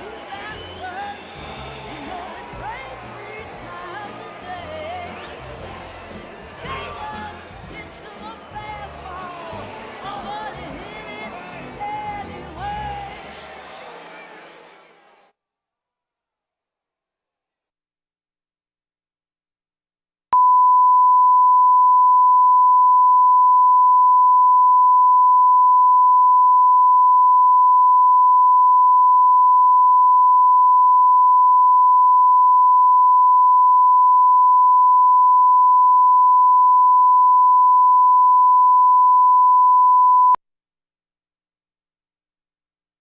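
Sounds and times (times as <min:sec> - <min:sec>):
steady reference tone beep: 0:20.4 - 0:40.4.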